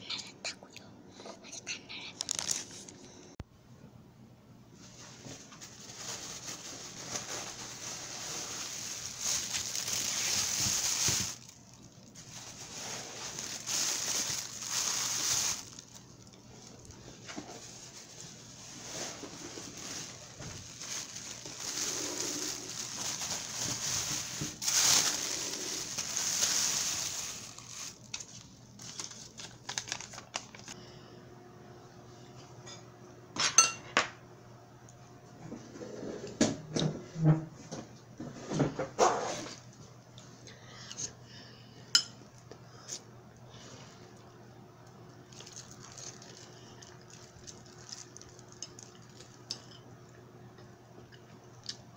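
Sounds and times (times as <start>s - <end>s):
plastic bags crinkling: 2.0s - 3.0s, 5.0s - 30.8s, 45.3s - 49.8s.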